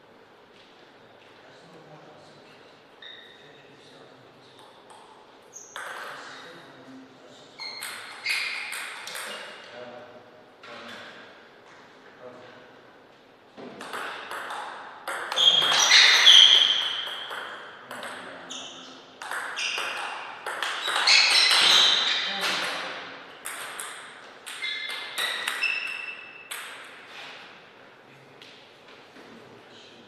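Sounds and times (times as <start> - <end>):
table tennis ball hits: 4.6 - 6.4, 7.6 - 9.7, 13.6 - 27.0.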